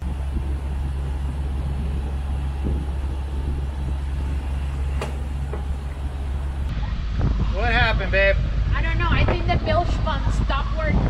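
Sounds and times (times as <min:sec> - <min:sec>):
boat engine droning: 0:00.0 - 0:06.8.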